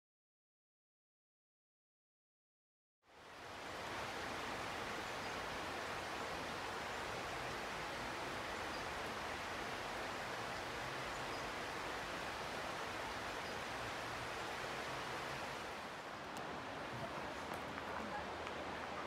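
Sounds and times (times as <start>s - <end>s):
river water rushing: 3.1s - 19.0s.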